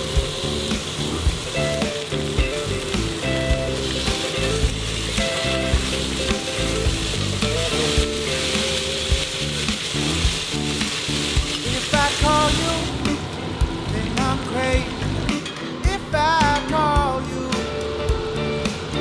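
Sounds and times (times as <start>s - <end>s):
steaks sizzling in a skillet: 0.0s - 13.2s
background music: 0.0s - 19.0s.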